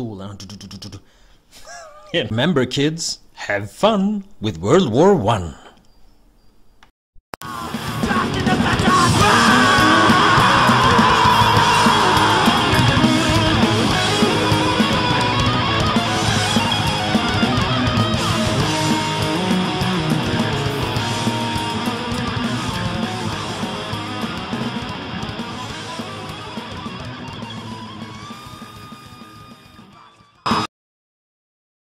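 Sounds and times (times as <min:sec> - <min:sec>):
thrash metal music: 0:07.4 - 0:30.7.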